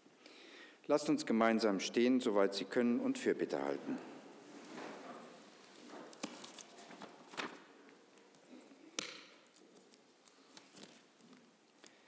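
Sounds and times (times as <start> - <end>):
people shuffling: 3.6 - 8.9.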